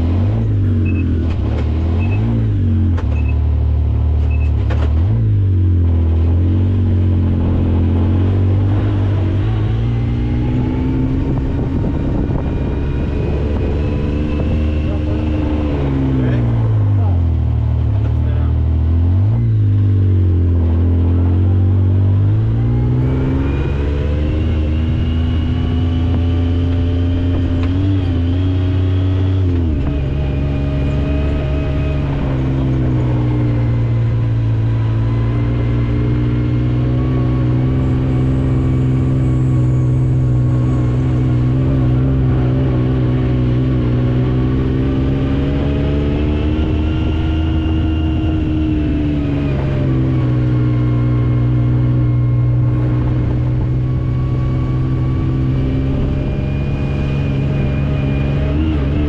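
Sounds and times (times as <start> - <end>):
engine running under load: 0.0 - 59.0.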